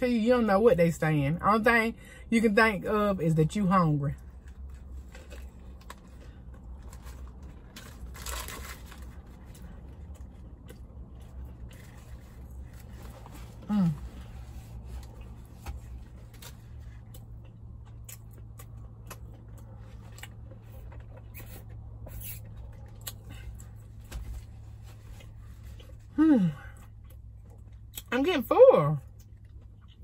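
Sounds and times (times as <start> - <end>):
steady low hum: 0.0 - 30.0
chewing with mouth clicks: 9.3 - 13.6, 14.9 - 24.2, 29.0 - 30.0
person humming mmm: 26.1 - 26.8.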